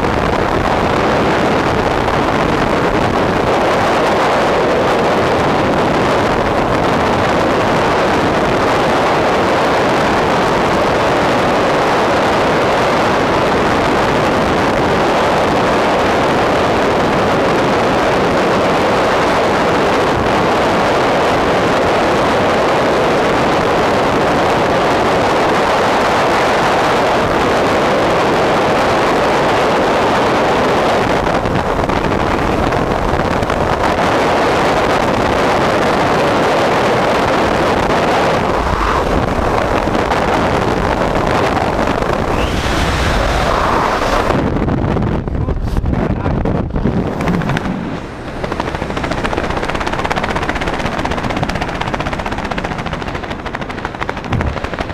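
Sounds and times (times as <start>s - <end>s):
low wind buffeting: 0.0s - 54.9s
wind rushing over microphone: 0.0s - 54.9s
low rumble: 37.3s - 51.2s, 54.1s - 54.9s.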